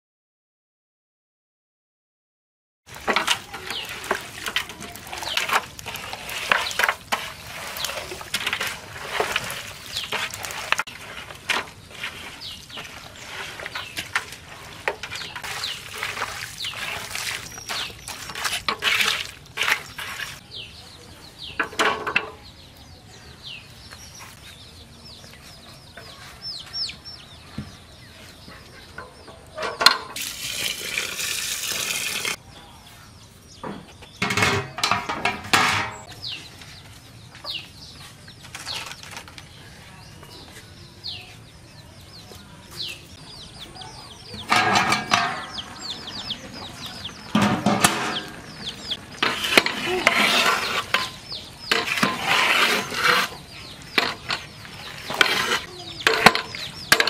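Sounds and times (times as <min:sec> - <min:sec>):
metal pot and ladle clattering: 0:02.9 - 0:11.8, 0:29.0 - 0:30.4, 0:34.2 - 0:36.1, 0:44.4 - 0:45.9, 0:47.3 - 0:53.4, 0:54.0 - 0:57.0
birds chirping: 0:02.9 - 0:57.0.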